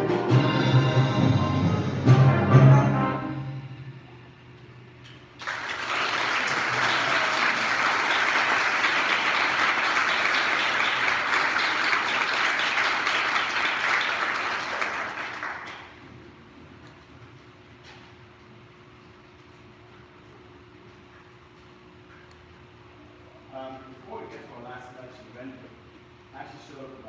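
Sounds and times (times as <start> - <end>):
audience applauding: 5.4 - 16.0.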